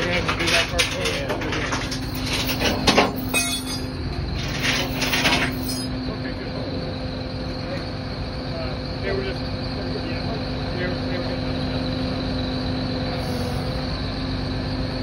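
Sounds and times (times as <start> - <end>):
clattering and metallic scraping: 0.0 - 6.0
machinery humming: 0.0 - 15.0.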